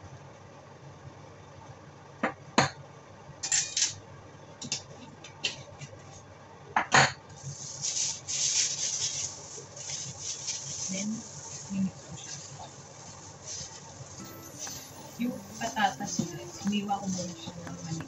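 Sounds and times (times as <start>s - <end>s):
plastic glove crinkling: 7.4s - 18.0s.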